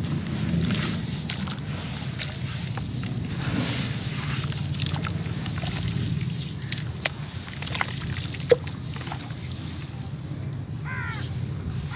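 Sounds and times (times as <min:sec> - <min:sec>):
drips and splashes: 0:00.0 - 0:09.6
hands squelching in wet slurry: 0:00.0 - 0:09.8.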